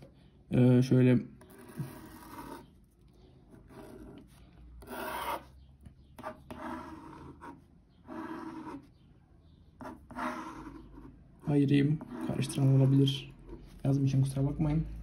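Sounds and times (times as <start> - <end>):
pen scratching on paper: 1.4 - 5.6, 6.2 - 8.9, 9.8 - 13.8.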